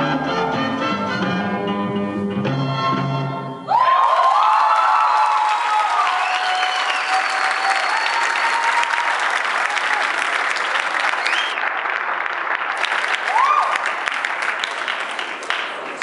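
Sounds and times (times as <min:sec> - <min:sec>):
people cheering: 0:03.7 - 0:16.0
audience clapping: 0:03.8 - 0:16.0.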